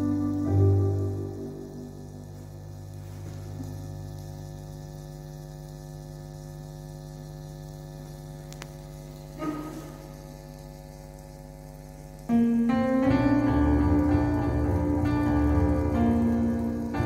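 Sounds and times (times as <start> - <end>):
electric keyboard chord: 0.0 - 3.9, 9.2 - 10.2, 12.1 - 17.0
sound system electrical hum: 0.0 - 17.0.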